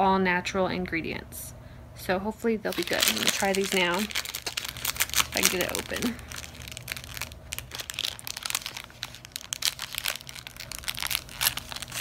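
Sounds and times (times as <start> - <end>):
plastic wrapper crinkling: 2.7 - 12.0.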